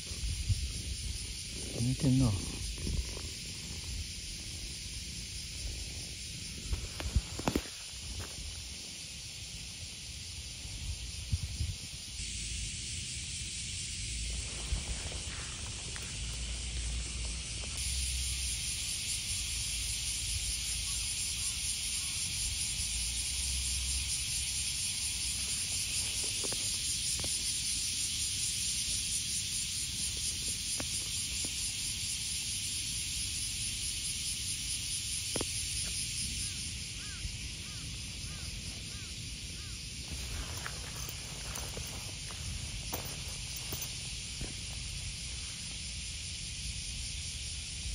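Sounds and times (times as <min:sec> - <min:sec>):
insect chorus hissing: 0:00.0 - 0:47.9.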